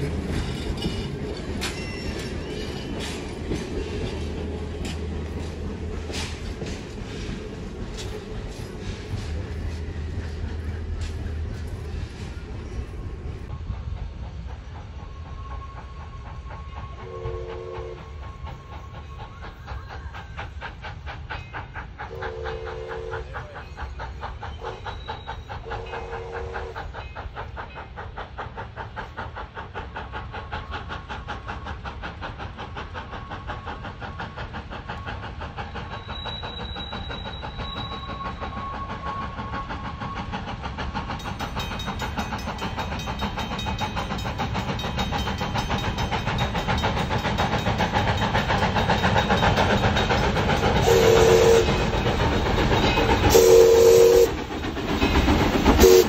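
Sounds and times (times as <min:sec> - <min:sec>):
steam train clattering and hissing: 0:00.0 - 0:56.0
steam train whistle blasts: 0:15.4 - 0:19.0, 0:22.1 - 0:23.6, 0:25.6 - 0:26.9, 0:50.8 - 0:51.9, 0:53.3 - 0:54.4, 0:55.8 - 0:56.0.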